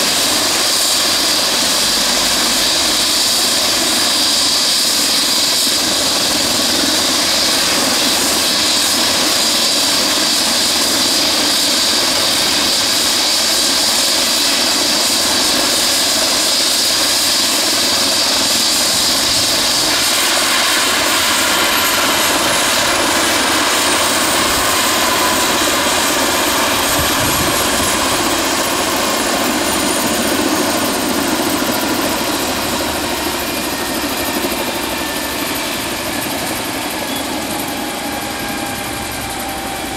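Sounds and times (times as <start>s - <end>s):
helicopter engines and rotor running: 0.0s - 39.9s
turbine whine falling in pitch: 19.3s - 39.9s.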